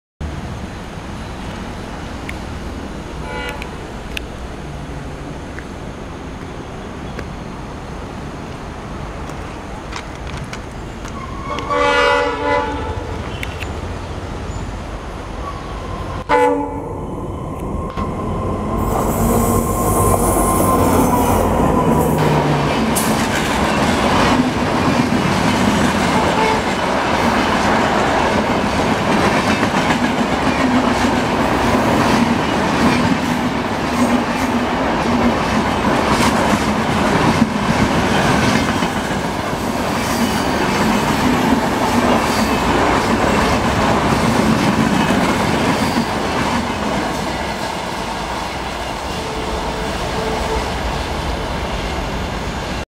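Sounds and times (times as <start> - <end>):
diesel locomotive engine passing: 0.2 - 52.8
train wheels on track: 0.2 - 52.8
locomotive horn blast: 3.2 - 3.8, 11.2 - 13.2, 16.2 - 17.0, 26.2 - 26.7, 49.1 - 50.9.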